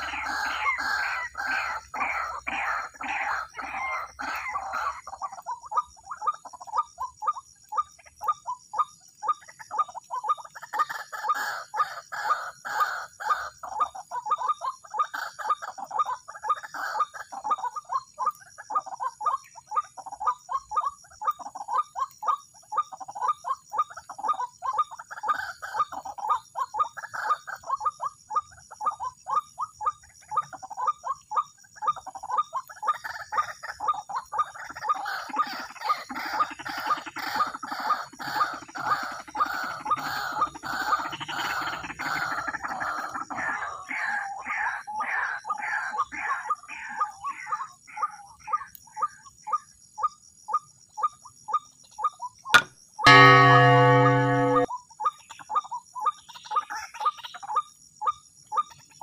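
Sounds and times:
waterhen calling: 0:00.0 - 0:07.3.

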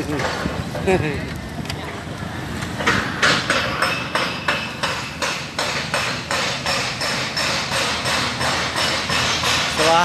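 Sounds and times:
rhythmic knocking: 0:03.2 - 0:10.0.

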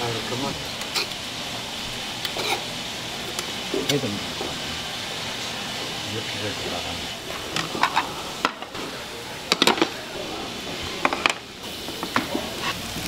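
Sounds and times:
steady hiss: 0:00.0 - 0:13.0
dishes and utensils clinking: 0:07.3 - 0:10.0, 0:10.6 - 0:12.8.

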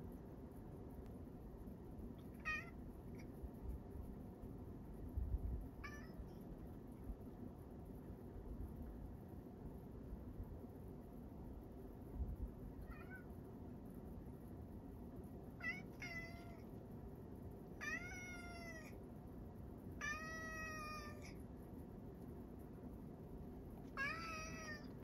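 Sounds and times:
cat meowing: 0:02.3 - 0:02.8, 0:05.8 - 0:06.3, 0:12.8 - 0:13.3, 0:15.6 - 0:16.7, 0:17.8 - 0:19.0, 0:20.0 - 0:21.4, 0:23.9 - 0:25.0.

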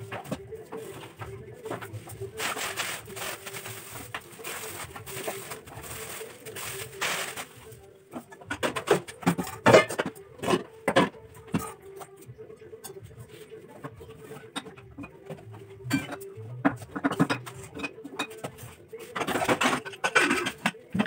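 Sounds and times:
kitchen things clattering: 0:00.0 - 0:12.0, 0:13.8 - 0:21.0
plastic bag rustling: 0:00.3 - 0:07.9.

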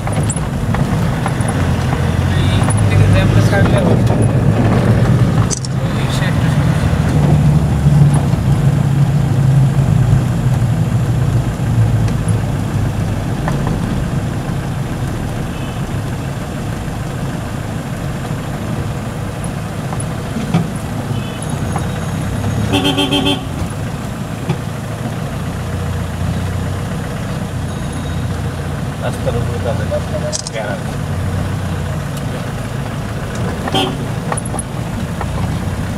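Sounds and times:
engine and road rumble: 0:00.0 - 0:35.9
car horn honk: 0:15.4 - 0:16.3, 0:21.0 - 0:23.7, 0:33.6 - 0:34.2.

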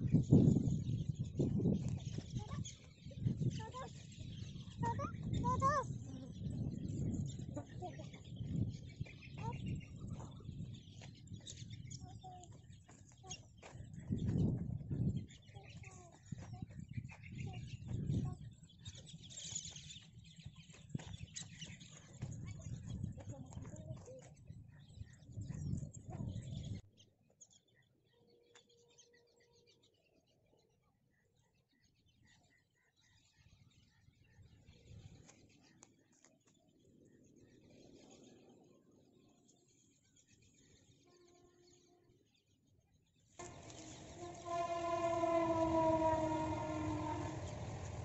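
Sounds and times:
small birds chirping: 0:00.0 - 0:48.0
loud low rumbling: 0:43.4 - 0:48.0
train horn: 0:43.4 - 0:48.0.

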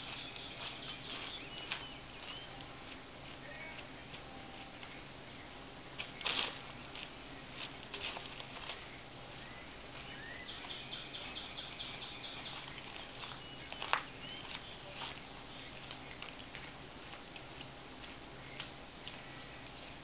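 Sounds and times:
bird chirps: 0:00.0 - 0:03.0, 0:08.8 - 0:16.4
footsteps on stone and mulch: 0:00.0 - 0:20.0.

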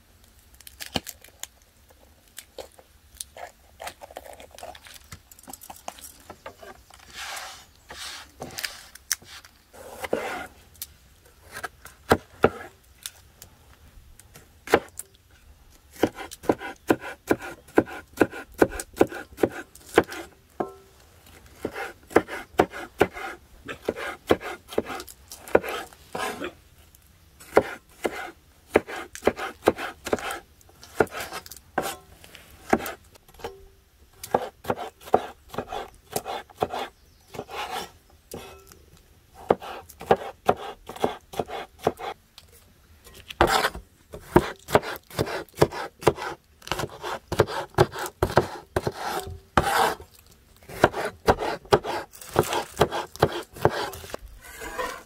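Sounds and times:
cleaver chopping on wooden board: 0:16.0 - 0:20.8, 0:21.6 - 0:26.3, 0:27.5 - 0:30.4, 0:34.3 - 0:37.7, 0:39.5 - 0:42.1, 0:43.4 - 0:50.0, 0:50.7 - 0:53.9.

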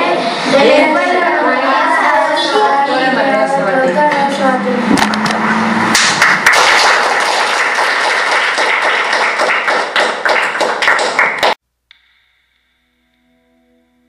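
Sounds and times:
children clapping: 0:05.2 - 0:11.6.

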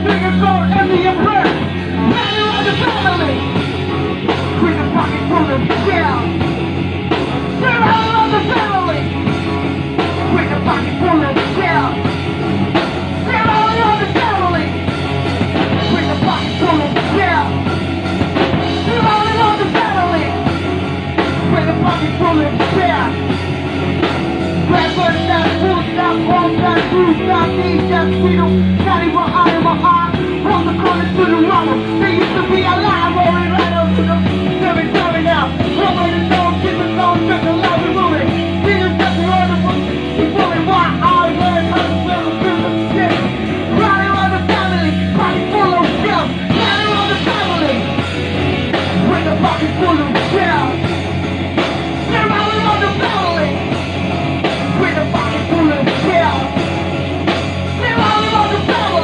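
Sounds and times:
person singing into a microphone: 0:00.0 - 0:03.6, 0:04.2 - 0:06.4, 0:07.6 - 0:09.2, 0:10.0 - 0:12.0, 0:13.2 - 0:14.8, 0:15.7 - 0:17.8, 0:18.8 - 0:20.4, 0:21.3 - 0:23.2, 0:24.7 - 0:48.0, 0:48.9 - 0:50.9, 0:52.1 - 0:53.7, 0:54.6 - 0:56.6, 0:57.8 - 0:59.0
drum kit: 0:00.0 - 0:59.0
electric guitar: 0:00.0 - 0:59.0.

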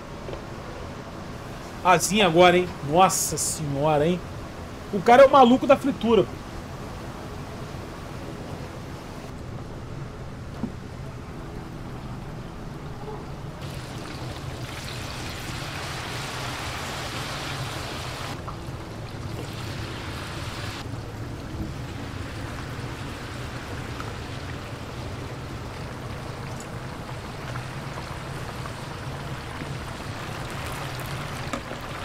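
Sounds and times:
chicken deep-frying in oil: 0:13.6 - 0:32.0.

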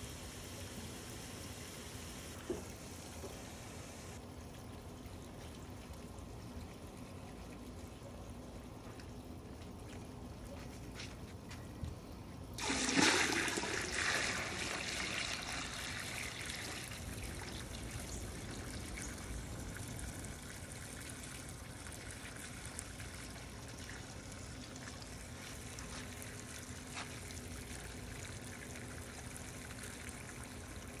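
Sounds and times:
water trickling and splashing: 0:04.2 - 0:31.0.

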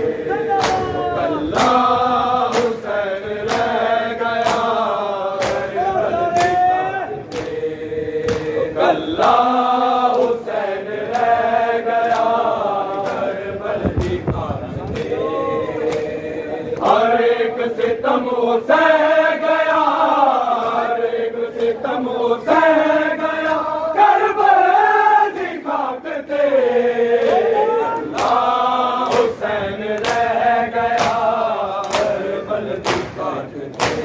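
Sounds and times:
men chanting in unison: 0:00.0 - 0:34.0
chest slaps: 0:00.6 - 0:01.0, 0:08.2 - 0:08.6.

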